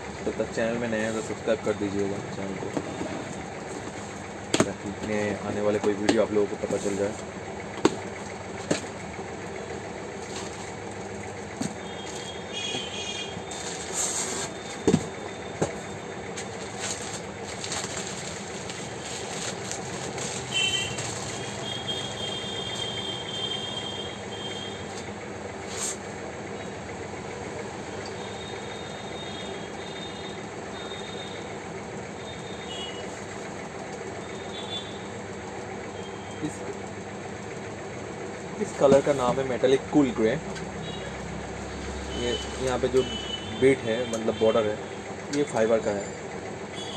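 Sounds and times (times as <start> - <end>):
street traffic hum: 0.0 - 46.9
plastic wrapping rustling: 16.3 - 22.0.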